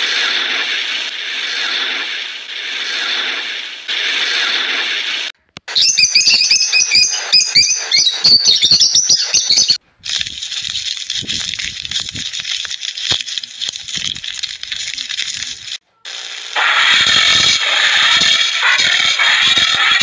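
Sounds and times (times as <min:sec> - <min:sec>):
parrot chirping and squawking: 0:05.7 - 0:09.8
steady hiss: 0:10.2 - 0:15.8.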